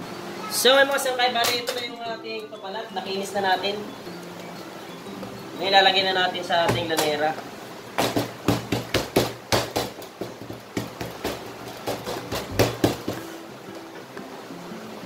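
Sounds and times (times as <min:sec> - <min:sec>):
hands slapping dough: 0:08.0 - 0:13.3.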